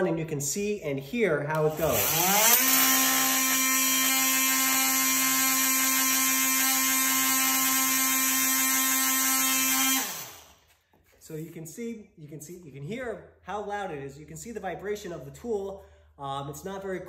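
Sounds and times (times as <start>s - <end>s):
oscillating multi-tool buzzing: 1.7s - 10.6s.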